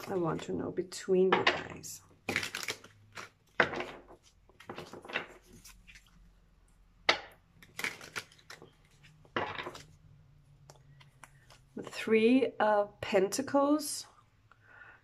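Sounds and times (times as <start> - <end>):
cards being shuffled: 2.3 - 6.3, 7.6 - 10.0, 10.7 - 11.8.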